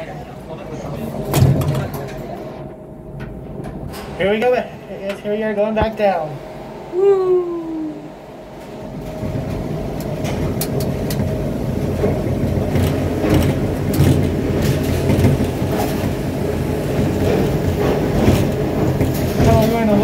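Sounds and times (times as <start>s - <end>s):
tram car rumbling: 0.0s - 20.0s
clicks and clanks: 12.0s - 16.2s.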